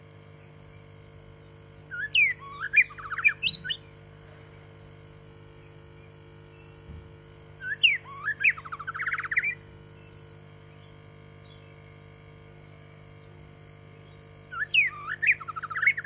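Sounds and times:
bird singing whistles and trills: 1.9 - 4.0, 7.6 - 11.9, 12.7 - 16.0.

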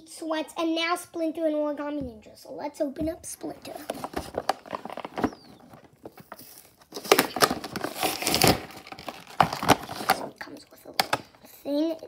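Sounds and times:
plastic packaging crinkling: 3.7 - 11.3.

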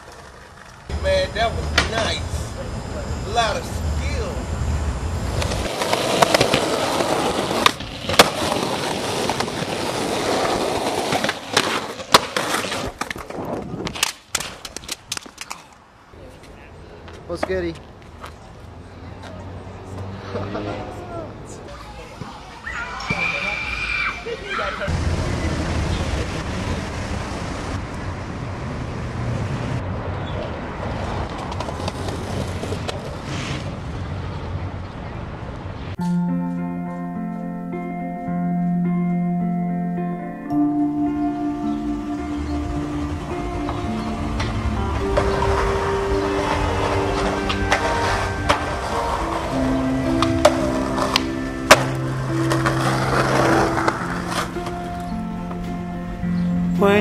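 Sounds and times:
skateboard wheels rolling on pavement: 0.0 - 39.4, 40.5 - 57.0
street traffic: 0.0 - 57.0
skateboard clacking on ground: 5.4 - 15.8, 16.4 - 18.4, 30.4 - 33.3, 42.5 - 55.6.

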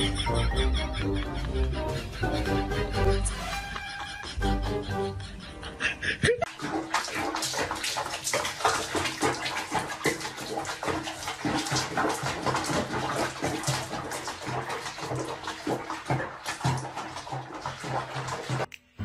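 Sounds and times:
water splashing in a basin: 6.4 - 18.7.

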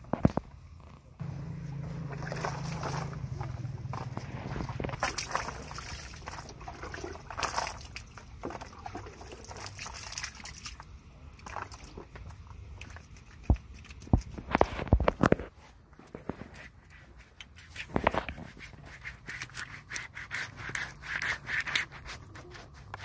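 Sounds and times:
water splashing and trickling: 1.2 - 15.1, 16.5 - 23.0
foot scrubbed on stone: 1.3 - 6.6, 12.9 - 23.0.

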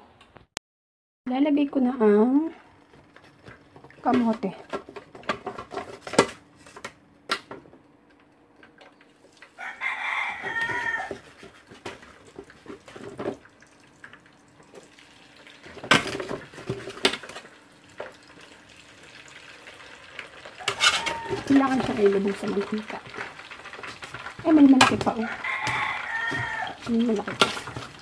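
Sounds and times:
rooster crowing: 9.6 - 11.3, 20.5 - 22.0, 25.1 - 26.8
metal ladle scraping a pan: 20.6 - 22.0, 23.0 - 28.0.

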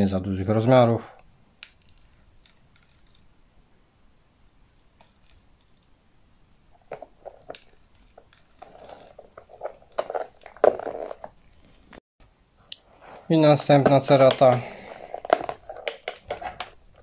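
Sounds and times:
plastic box scraping: 6.9 - 11.4.

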